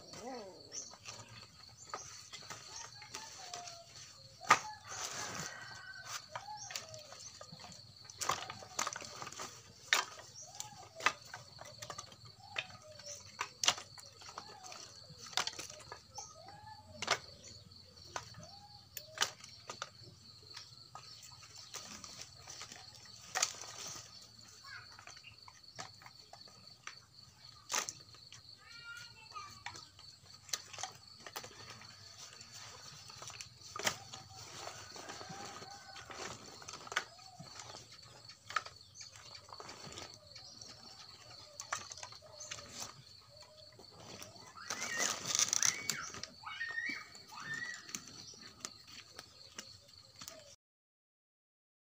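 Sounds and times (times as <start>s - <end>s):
insect drone: 0.0s - 29.5s, 30.2s - 50.0s
birds calling softly: 0.0s - 50.6s
twigs snapping: 30.4s - 37.7s, 44.1s - 48.0s
bird calling: 30.5s - 50.6s
dry sticks cracking: 44.2s - 48.0s.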